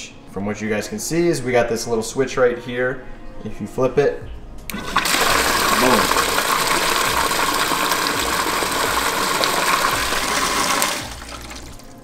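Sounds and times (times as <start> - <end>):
pump splashing water: 4.7 - 12.0.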